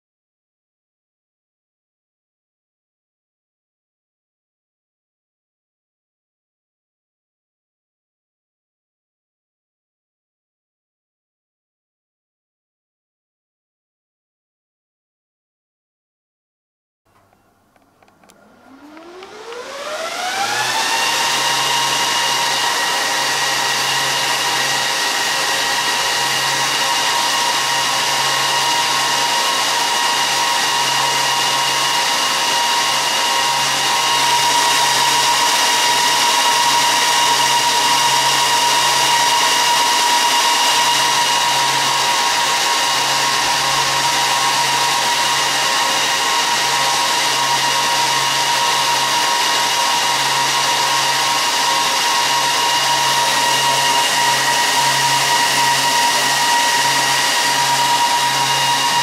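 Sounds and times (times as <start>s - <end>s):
server cooling fans whining: 17.2s - 59.0s.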